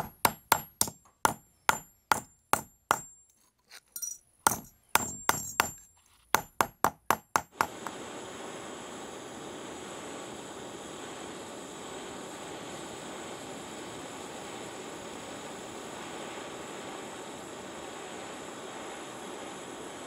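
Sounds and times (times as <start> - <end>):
hammer striking metal: 0.0 - 3.2, 4.0 - 5.8
gas torch flame hissing: 7.4 - 20.0.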